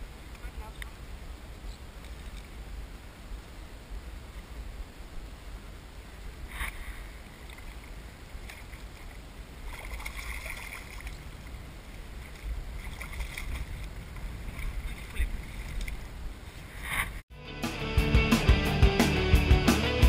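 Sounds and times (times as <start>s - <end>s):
wind on microphone: 0.0s - 17.2s
fish splashing in water: 9.6s - 11.3s, 12.3s - 16.0s.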